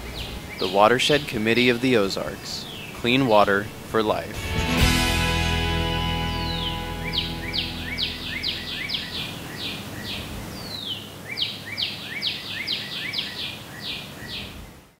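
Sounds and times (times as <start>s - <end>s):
songbird whistling: 6.2s - 13.4s.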